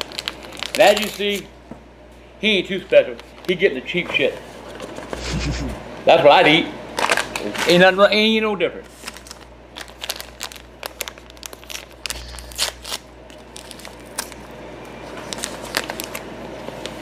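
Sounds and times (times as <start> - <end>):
plastic bag crinkling: 0.0 - 1.5, 8.9 - 17.0.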